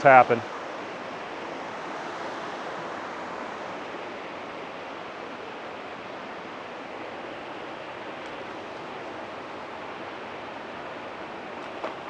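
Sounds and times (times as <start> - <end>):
creek cascading over rock: 0.0 - 0.5
small waterfall rushing: 0.0 - 12.0.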